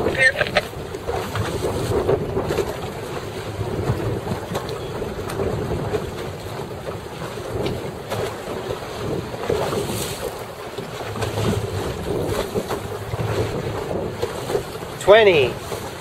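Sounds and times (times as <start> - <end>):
choppy water splashing: 0.0 - 16.0
wind buffeting microphone: 0.0 - 16.0.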